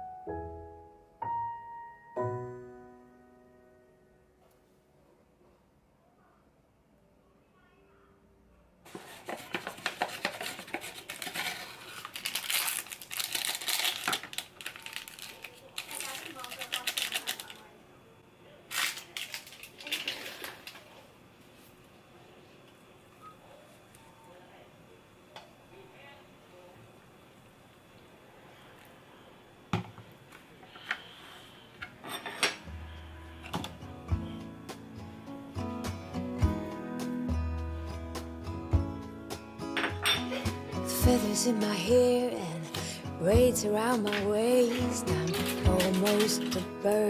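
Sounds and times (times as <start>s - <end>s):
plastic packaging crinkling: 8.9s - 17.7s, 18.7s - 21.0s, 44.0s - 47.0s.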